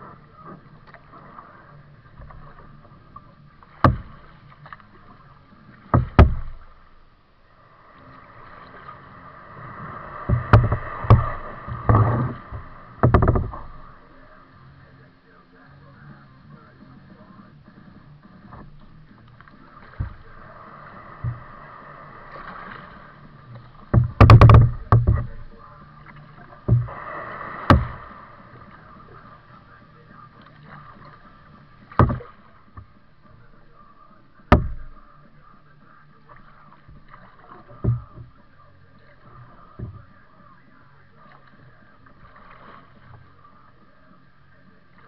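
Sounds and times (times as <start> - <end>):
paddle knocks and splashes: 2.1 - 7.0, 8.4 - 14.3, 18.3 - 40.4.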